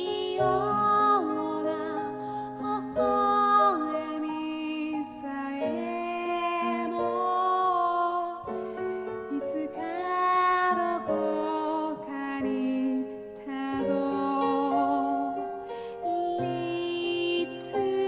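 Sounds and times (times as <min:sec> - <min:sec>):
woman singing slow song: 0:00.0 - 0:08.5, 0:09.2 - 0:18.0
keyboard accompaniment: 0:00.0 - 0:18.0.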